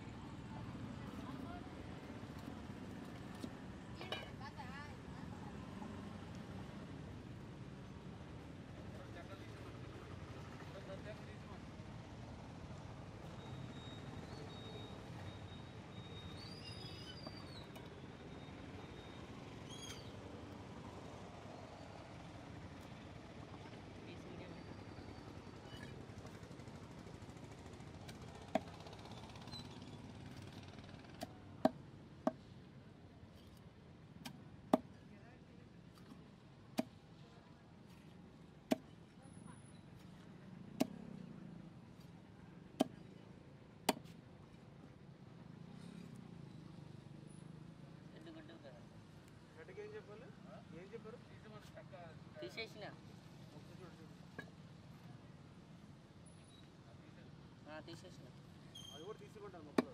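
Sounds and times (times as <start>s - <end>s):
outdoor background noise: 0.0s - 59.9s.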